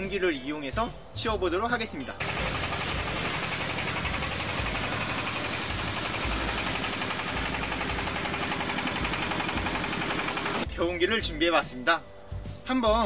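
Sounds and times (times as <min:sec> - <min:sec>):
diesel engine chugging: 0:02.2 - 0:10.6.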